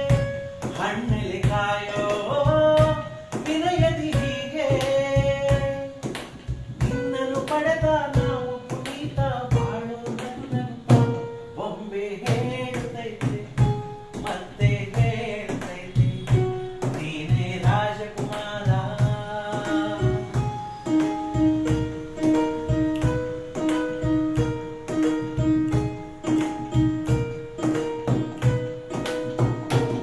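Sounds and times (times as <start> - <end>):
man singing: 0.0 - 6.1, 6.8 - 20.5
hands drumming on wooden desk: 0.0 - 11.3, 12.2 - 30.0
keyboard app playing: 0.0 - 30.0.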